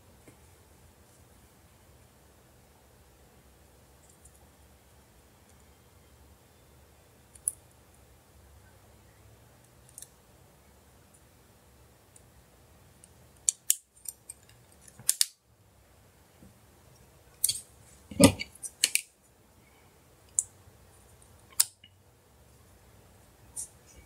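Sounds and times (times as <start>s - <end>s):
plastic phone parts clicking: 13.4s - 15.3s.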